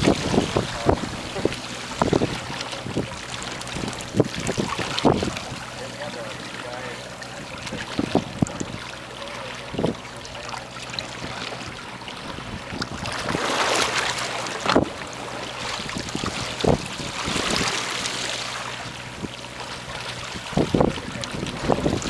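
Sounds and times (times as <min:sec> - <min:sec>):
wind on microphone: 0:00.0 - 0:05.8, 0:07.4 - 0:08.9, 0:09.6 - 0:10.0, 0:11.2 - 0:13.6, 0:14.6 - 0:18.2, 0:18.8 - 0:22.0
water lapping against boat hull: 0:00.0 - 0:22.0.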